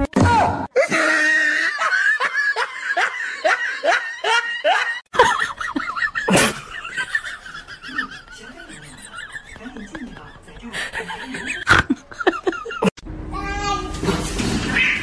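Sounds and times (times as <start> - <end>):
person laughing: 0.8 - 13.0.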